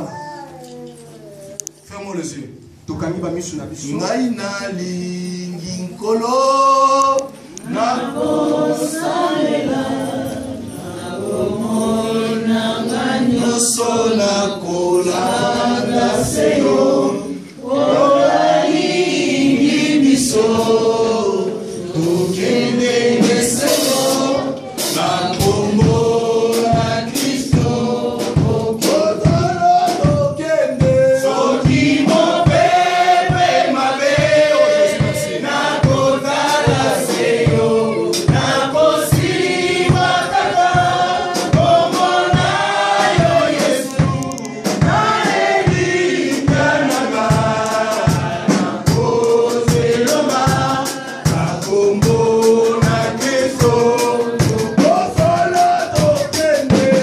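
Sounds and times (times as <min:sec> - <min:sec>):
congregation singing: 0:02.7 - 0:57.0
man singing into a microphone: 0:04.1 - 0:07.4
steady beat of short strokes: 0:07.4 - 0:57.0.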